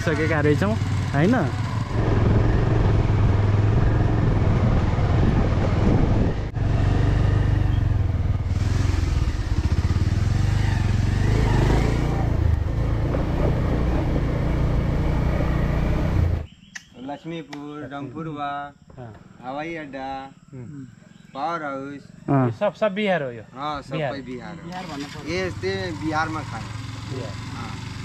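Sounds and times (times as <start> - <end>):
motorcycle engine running: 0.0 - 16.5, 24.5 - 28.0
wind on microphone: 1.8 - 7.2.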